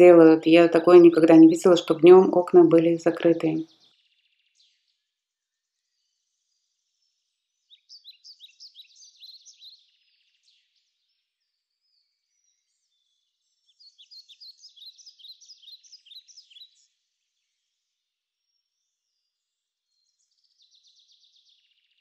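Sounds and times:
songbird chirping: 0.0s - 4.7s, 7.7s - 10.6s, 13.7s - 16.9s.

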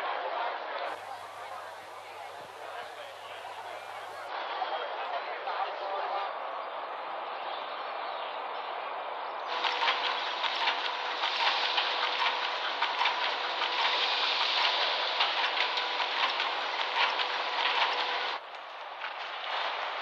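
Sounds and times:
mill machinery clattering: 9.5s - 18.4s
steady machine hum: 9.5s - 18.4s
quiet crackle: 9.5s - 20.0s.

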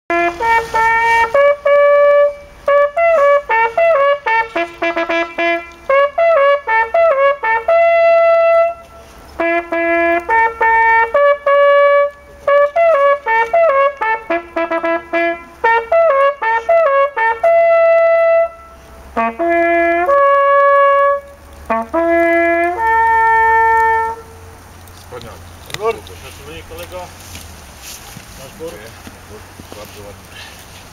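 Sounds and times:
hunting horn call: 0.1s - 24.6s.

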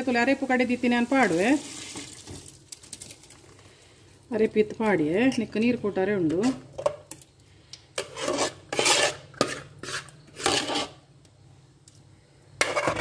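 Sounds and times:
metal spoon scraping metal plate: 8.0s - 11.0s, 12.6s - 13.0s.

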